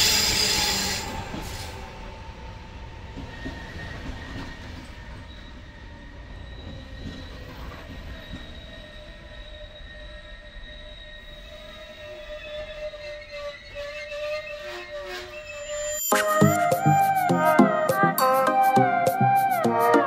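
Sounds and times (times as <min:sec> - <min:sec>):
train rumbling past: 0:00.0 - 0:18.1
wheels squealing: 0:03.3 - 0:16.1.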